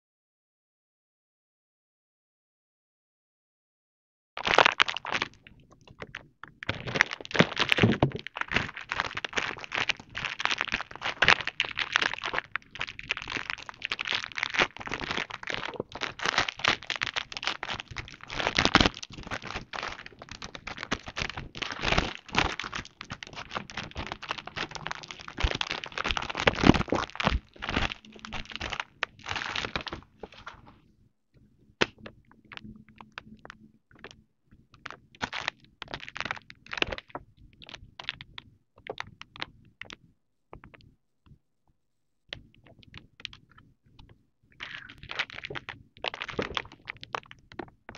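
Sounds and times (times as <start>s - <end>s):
plastic packaging crinkling: 4.4s - 30.7s, 34.8s - 38.2s, 44.6s - 47.4s.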